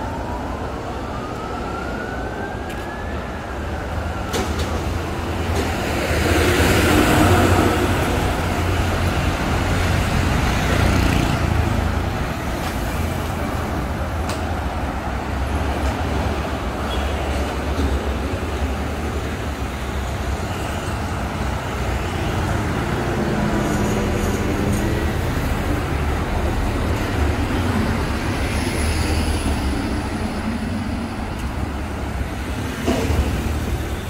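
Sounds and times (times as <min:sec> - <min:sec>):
street traffic: 0:00.0 - 0:34.0
loud vehicle passing: 0:05.8 - 0:13.2.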